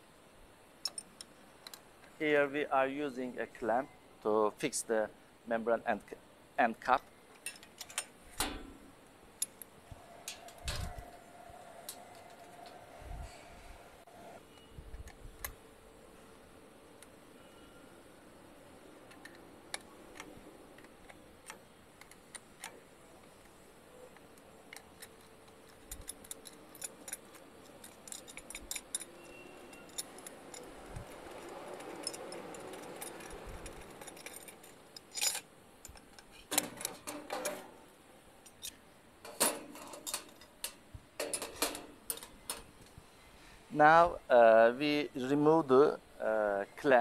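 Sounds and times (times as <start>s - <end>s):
metal clamp clattering: 24.1s - 37.8s, 38.4s - 42.7s
spanners clicking on metal: 24.7s - 37.7s, 38.4s - 42.7s.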